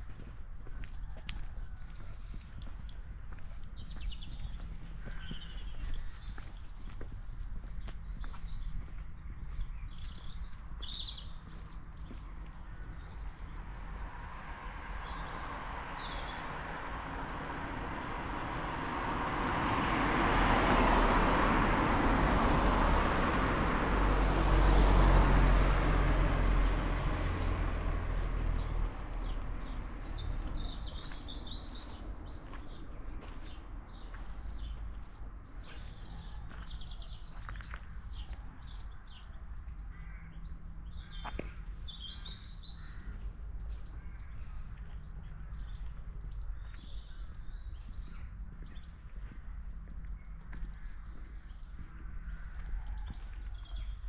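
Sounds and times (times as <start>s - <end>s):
small birds chirping: 2.0s - 18.9s, 28.1s - 54.0s
car passing: 10.8s - 35.0s.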